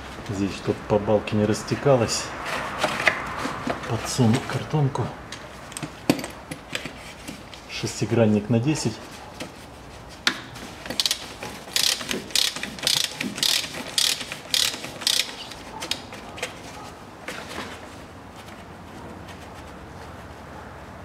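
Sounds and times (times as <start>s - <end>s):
socket ratchet clicking: 10.9s - 16.1s.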